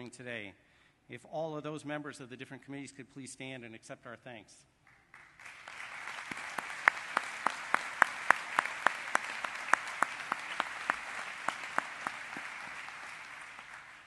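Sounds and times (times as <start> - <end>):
audience applauding: 4.9 - 14.0
person clapping close by: 4.9 - 14.0.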